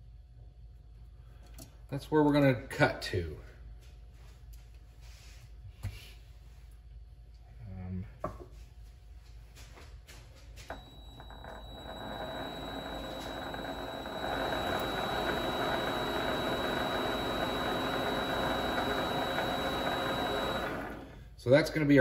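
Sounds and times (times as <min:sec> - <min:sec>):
lathe motor whine: 0:10.7 - 0:21.2.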